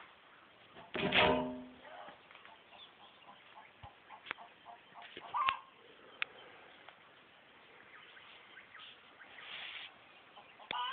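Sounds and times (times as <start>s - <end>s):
chicken clucking: 1.8s - 5.8s, 10.2s - 10.9s.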